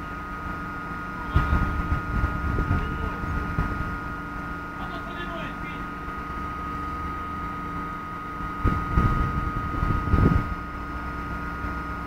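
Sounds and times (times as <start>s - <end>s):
excavator mechanical hum: 0.0s - 12.0s
high whine: 0.0s - 12.0s.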